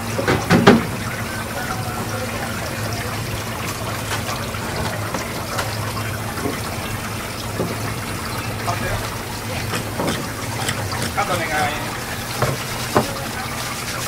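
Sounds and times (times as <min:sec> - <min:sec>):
tap water running: 0:00.0 - 0:14.0
faint wet taps: 0:12.4 - 0:13.2.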